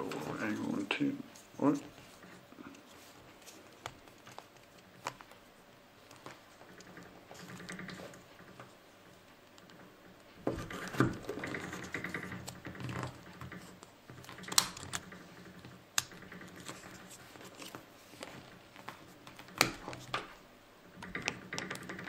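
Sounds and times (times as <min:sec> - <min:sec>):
plastic rustling: 0:00.0 - 0:22.0
sharp plastic clicks: 0:09.3 - 0:22.0.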